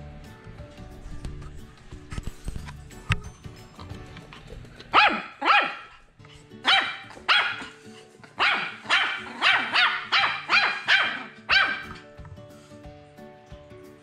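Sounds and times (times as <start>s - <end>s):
background music: 0.0s - 14.0s
puppy yapping: 5.0s - 6.0s, 6.6s - 7.8s, 8.4s - 12.0s.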